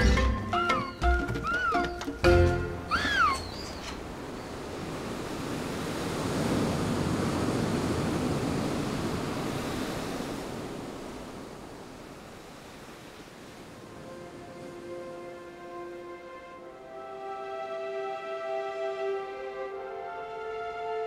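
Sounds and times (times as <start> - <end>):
waves on rocky shore: 0.9 - 17.3.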